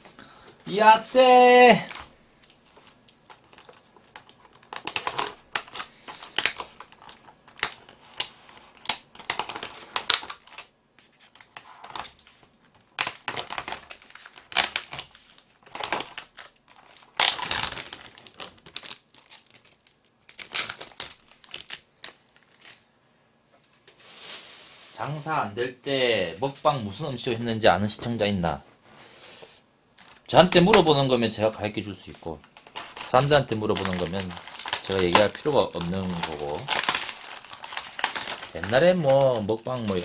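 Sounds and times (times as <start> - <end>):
cling film crinkling: 0.6 - 22.9, 32.1 - 40.0.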